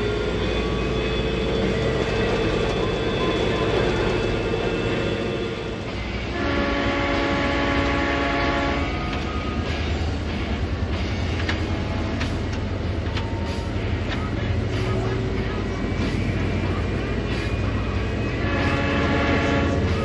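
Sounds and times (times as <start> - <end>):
locomotive horn chord: 0.0 - 9.5, 16.5 - 20.0
locomotive engine drone: 0.0 - 20.0.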